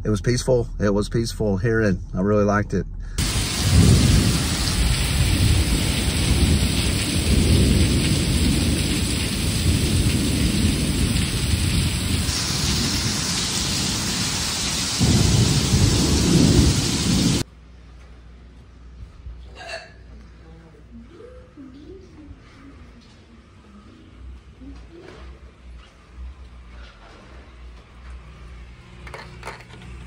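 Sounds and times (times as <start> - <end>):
thunder rolling: 3.2 - 17.4
heavy rain on pavement: 3.2 - 17.5.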